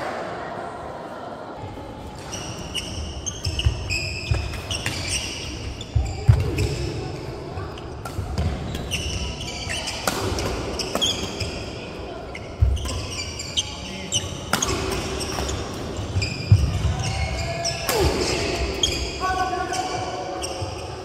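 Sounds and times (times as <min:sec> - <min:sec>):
sneakers squeaking on wooden floor: 0:02.2 - 0:07.0, 0:07.7 - 0:21.0.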